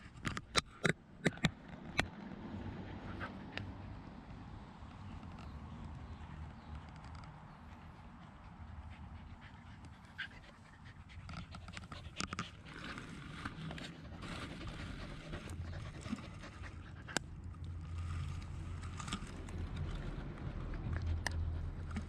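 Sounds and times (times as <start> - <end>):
dog gnawing wooden stick: 0.0 - 22.0
dog panting: 2.7 - 5.1, 5.9 - 17.4, 20.1 - 22.0.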